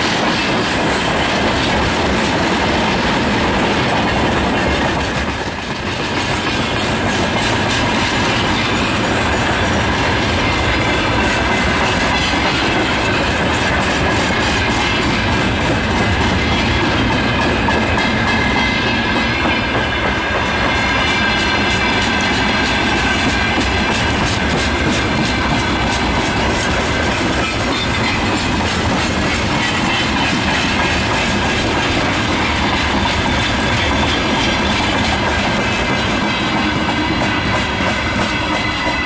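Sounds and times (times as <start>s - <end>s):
train wheels rumbling on rails: 0.0s - 39.0s.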